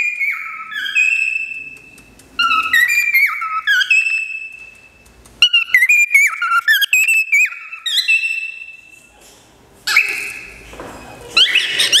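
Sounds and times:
cockatiel whistling: 0.0 - 1.8, 2.4 - 4.8, 5.4 - 8.9, 9.9 - 10.5, 11.4 - 12.0.

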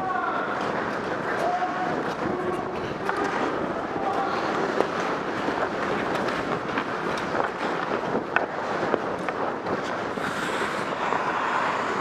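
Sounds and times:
hockey sticks and pucks clicking: 0.1 - 12.0
skate blades scraping ice: 0.5 - 12.0.

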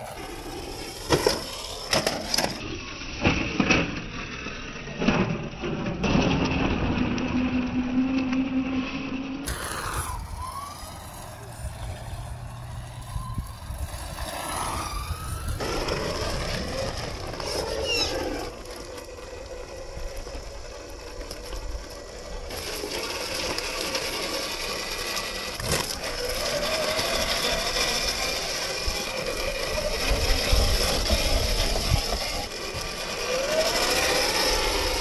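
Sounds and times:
electric motor whining: 9.4 - 35.0.

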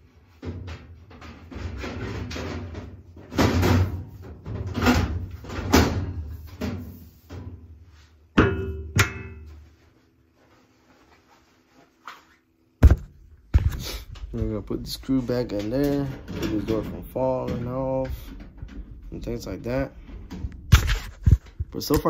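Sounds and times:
metal panels scraping and shuffling: 0.2 - 8.2, 13.6 - 22.0.

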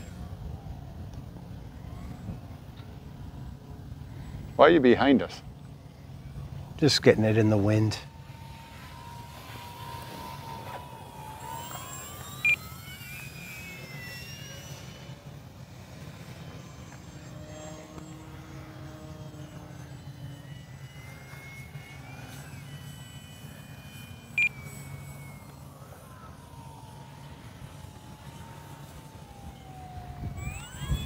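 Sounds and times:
electric motor and propeller whining: 0.0 - 31.0
wind rumbling on microphone: 27.7 - 31.0.

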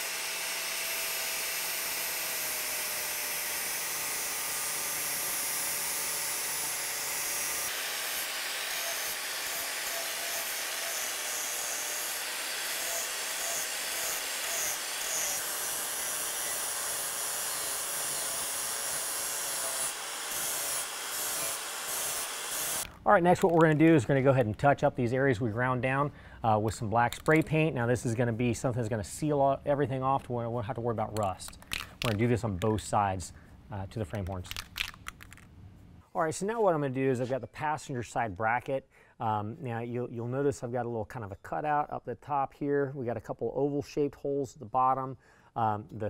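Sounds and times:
angle grinder grinding steel: 0.0 - 22.9.

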